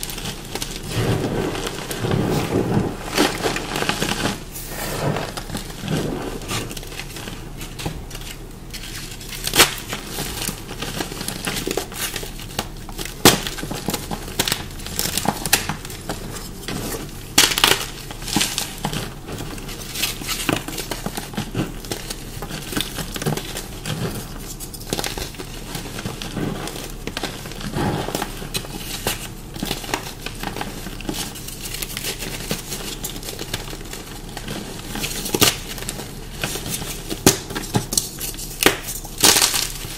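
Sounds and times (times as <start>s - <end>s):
chalk crunching: 0.0s - 11.2s.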